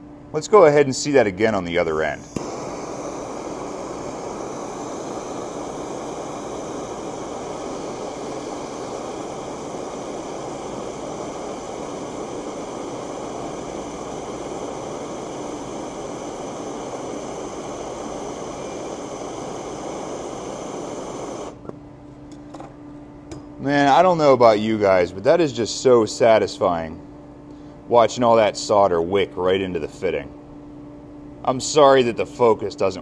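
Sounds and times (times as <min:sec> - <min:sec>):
gas torch hissing: 0:00.5 - 0:21.7.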